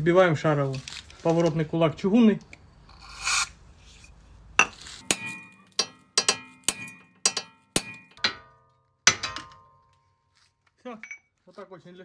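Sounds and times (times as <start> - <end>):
sledgehammer striking steel: 5.0 - 9.9.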